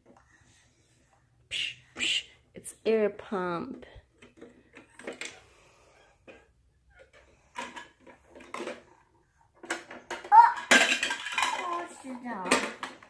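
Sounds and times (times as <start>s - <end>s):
plastic toy knocks and rattles: 6.2s - 9.0s, 9.6s - 13.0s.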